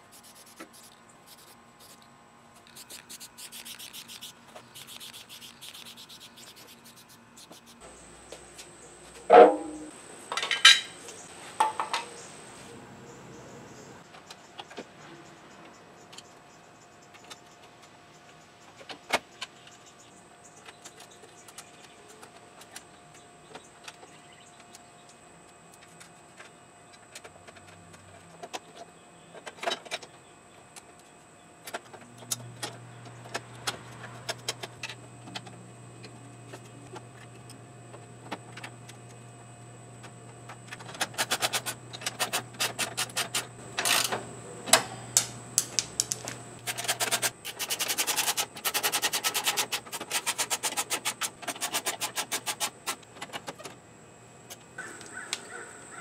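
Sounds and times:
metal parts clicking and knocking: 40.7 - 53.7
socket ratchet clicking: 44.8 - 47.2.

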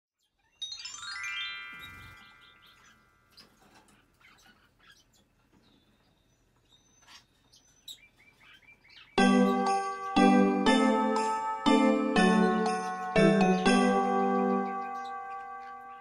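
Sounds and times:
descending bell-like chimes: 0.4 - 3.7, 9.2 - 16.0
faint bird chirps: 1.7 - 9.2.

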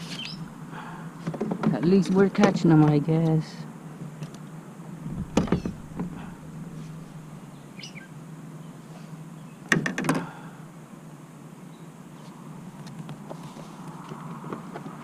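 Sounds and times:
faint bird chirp: 0.0 - 0.5, 7.4 - 9.7.

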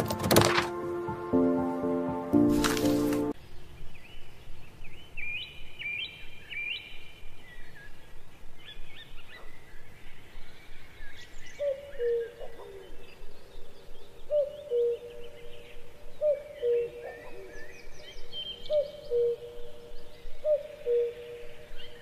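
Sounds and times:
outdoor background noise: 2.4 - 22.0
birds chirping: 2.6 - 22.0
upward-sweeping bird chirp: 10.2 - 22.0.

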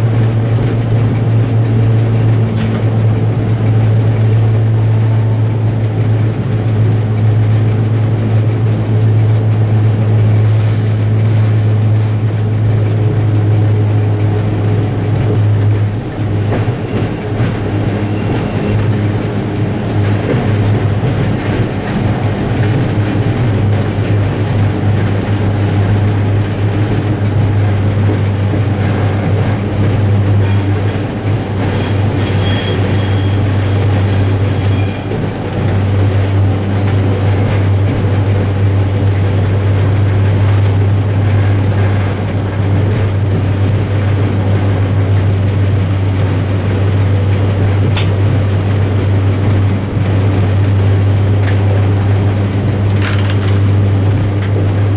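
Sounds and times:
diesel locomotive drone: 0.0 - 54.9
wheels rolling on rails: 0.0 - 54.9
high wheel squeal: 31.6 - 35.2.

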